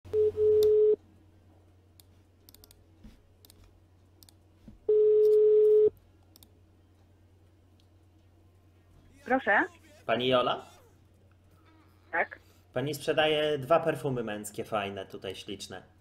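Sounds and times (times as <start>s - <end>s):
telephone ringback beeps: 0.1s - 1.0s.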